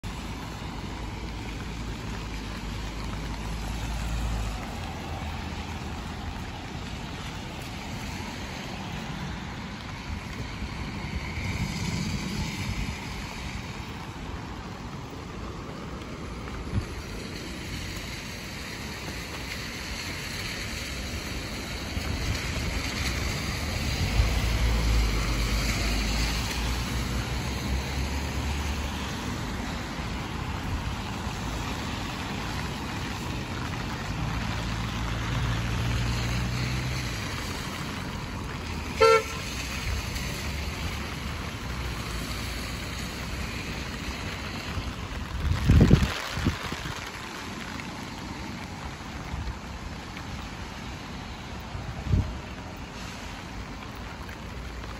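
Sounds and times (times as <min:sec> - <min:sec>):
rain and tyres hissing: 0:00.0 - 0:54.9
vehicles passing rumble: 0:00.0 - 0:54.9
car horn toot: 0:39.0 - 0:39.5.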